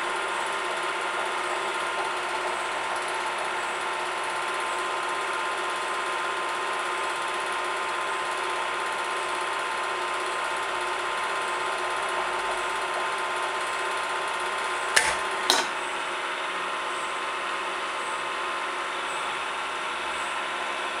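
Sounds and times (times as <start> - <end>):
testing machine drive humming: 10.4 - 16.1.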